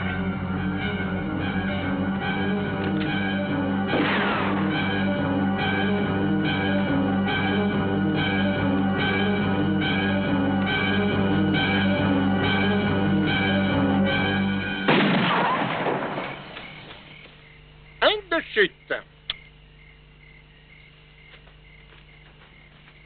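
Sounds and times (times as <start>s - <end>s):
film score music with low drone: 0.0s - 15.3s
loud sudden crash: 3.9s - 4.7s, 14.9s - 16.5s.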